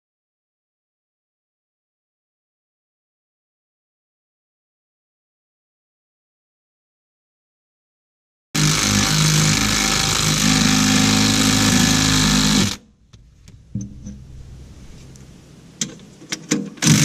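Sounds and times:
impact driver hammering: 8.6s - 13.2s.

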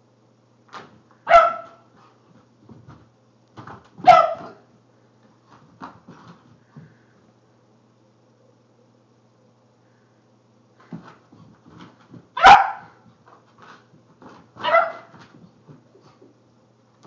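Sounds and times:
dog barking: 1.3s - 1.9s, 4.0s - 4.6s, 12.4s - 13.0s, 14.6s - 15.1s.

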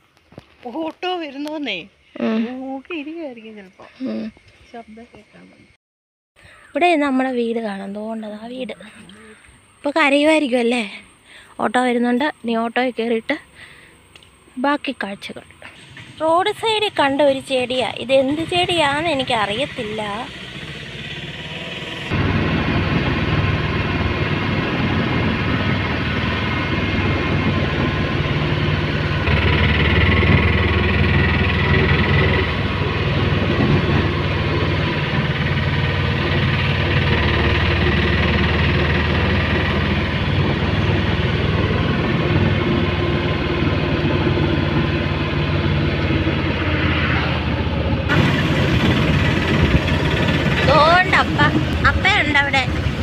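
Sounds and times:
road noise: 6.4s - 53.0s
small engine droning: 13.0s - 53.0s.

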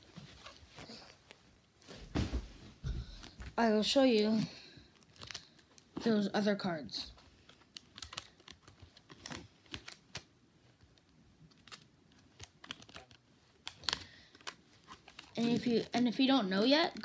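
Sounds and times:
cards being handled: 7.2s - 16.3s.

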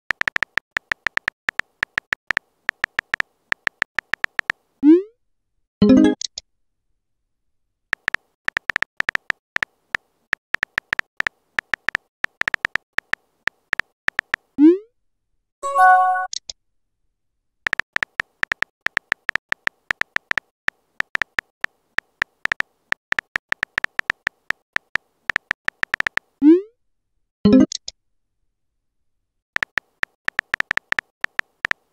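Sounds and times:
phone keyboard tapping: 0.1s - 4.6s, 7.9s - 14.5s, 17.7s - 26.4s, 29.6s - 31.9s.

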